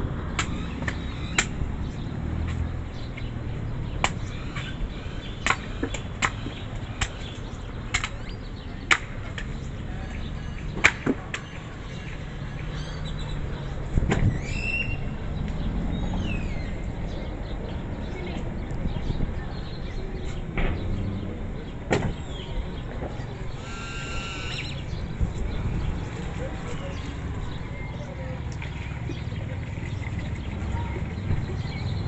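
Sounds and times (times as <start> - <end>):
birds chirping: 0.0 - 32.0
machete chopping coconut: 0.4 - 1.6.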